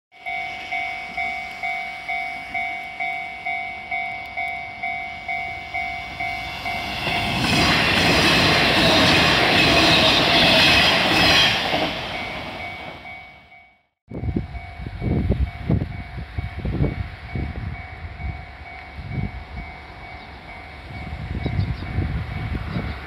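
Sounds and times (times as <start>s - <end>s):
electric train passing on rails: 0.1s - 23.0s
level-crossing warning bell dinging: 0.1s - 23.0s.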